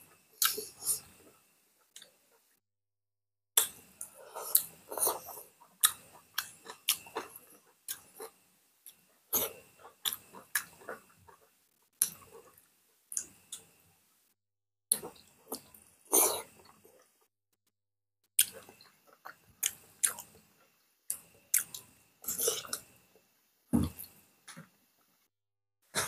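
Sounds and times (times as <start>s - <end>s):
people chewing and lip-smacking: 3.6s - 13.7s, 18.4s - 20.5s.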